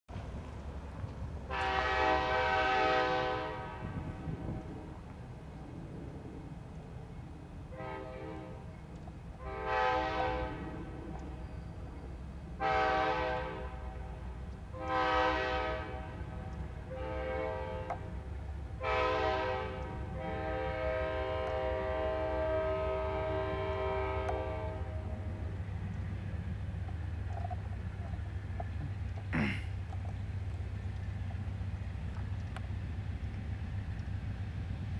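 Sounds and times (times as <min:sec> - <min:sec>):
locomotive air horn blasts: 0:01.5 - 0:04.6, 0:07.7 - 0:08.8, 0:09.4 - 0:10.9, 0:12.6 - 0:25.6
steady low rumble: 0:03.3 - 0:09.7, 0:19.6 - 0:34.9.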